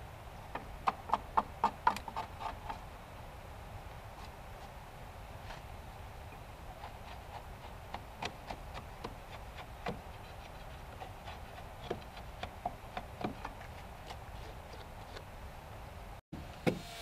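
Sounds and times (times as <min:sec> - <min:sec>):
hand tool scraping timber: 0:01.6 - 0:02.9, 0:06.7 - 0:15.3.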